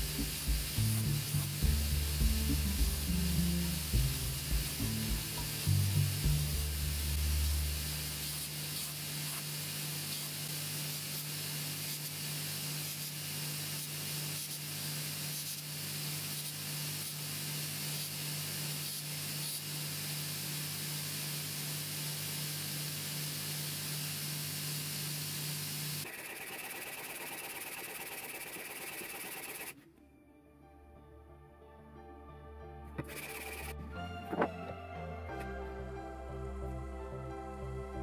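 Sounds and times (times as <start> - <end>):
steady hiss: 0.0 - 29.7
low hum: 33.5 - 38.0.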